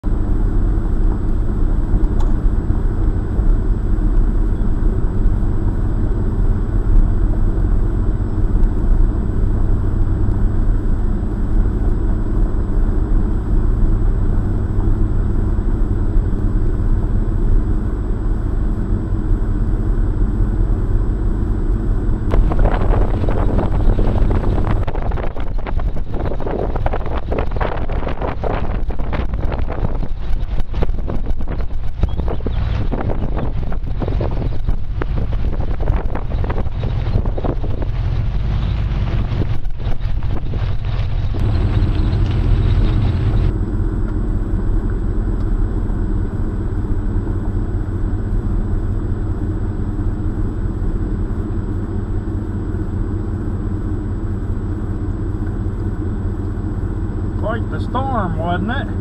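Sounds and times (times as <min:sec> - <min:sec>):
car driving on gravel: 0:00.0 - 0:59.0
rushing noise: 0:22.3 - 0:32.0
wind on microphone: 0:22.3 - 0:43.5.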